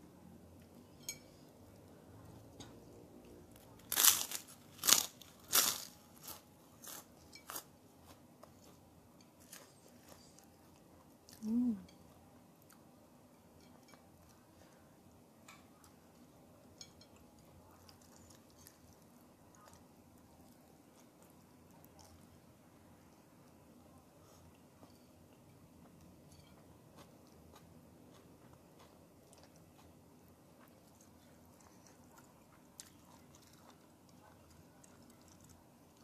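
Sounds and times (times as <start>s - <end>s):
voice humming: 11.4s - 11.9s.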